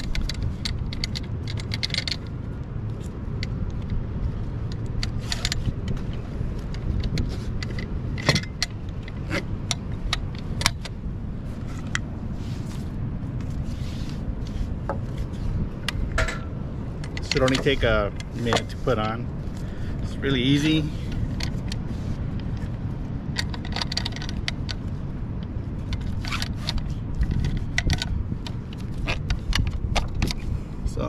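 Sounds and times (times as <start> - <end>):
metal buckle clinks and clicks: 0.0 - 4.0, 23.3 - 30.4.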